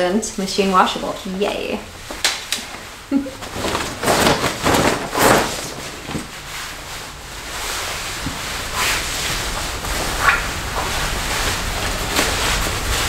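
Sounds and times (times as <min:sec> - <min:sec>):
fabric rustling: 0:02.1 - 0:13.0
cape swishing: 0:02.8 - 0:13.0.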